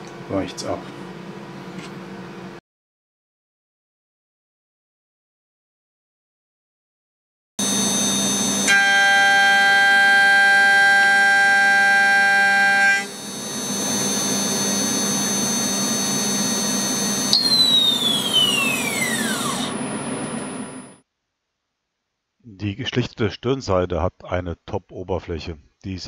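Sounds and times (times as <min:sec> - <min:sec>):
milling spindle whine: 0:07.6 - 0:21.0.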